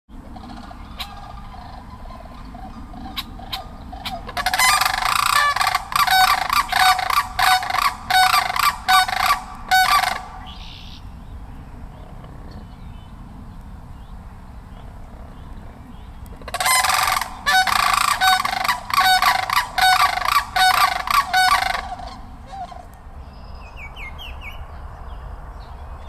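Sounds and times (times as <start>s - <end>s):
sandhill cranes calling: 0.2s - 11.1s, 16.2s - 23.4s.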